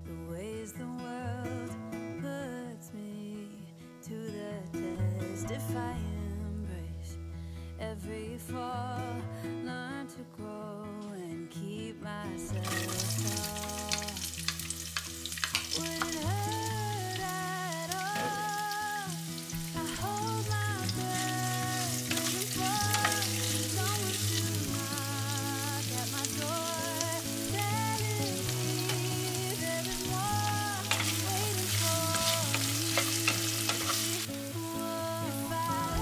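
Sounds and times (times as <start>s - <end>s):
onions sizzling in hot oil: 12.6s - 36.0s.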